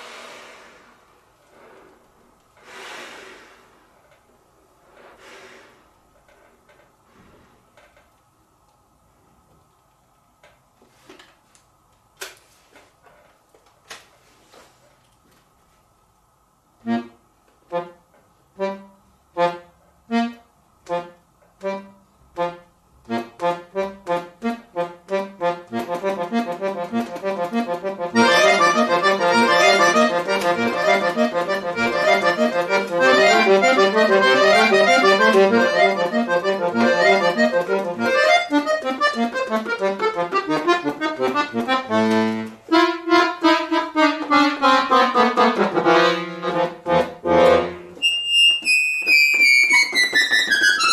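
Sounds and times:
button accordion playing: 16.8 - 50.9.

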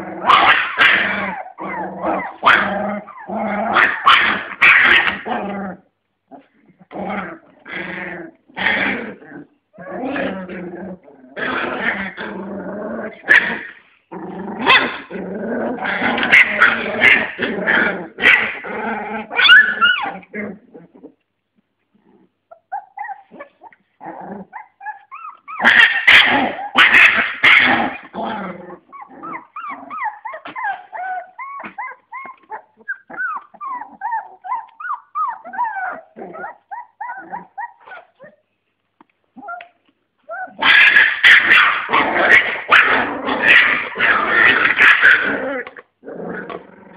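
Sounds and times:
puppies growling and yapping: 0.0 - 46.9
puppies whimpering and yipping: 0.5 - 3.3, 19.2 - 21.2, 22.4 - 26.9, 28.8 - 38.6, 39.3 - 41.6.

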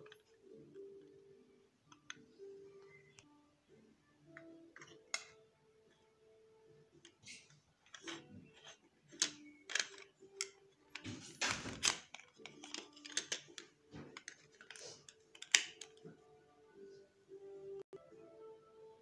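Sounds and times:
plastic bricks clicking together: 7.1 - 16.0.

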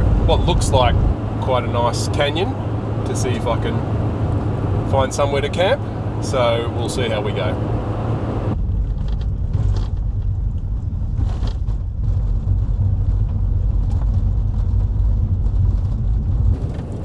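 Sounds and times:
car engine and tyres rumbling: 0.0 - 17.0.

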